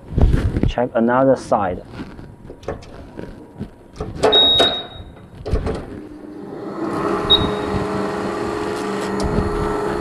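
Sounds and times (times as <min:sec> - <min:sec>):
knitting machine motor hum: 0:05.4 - 0:10.0
short high tone: 0:07.2 - 0:07.8.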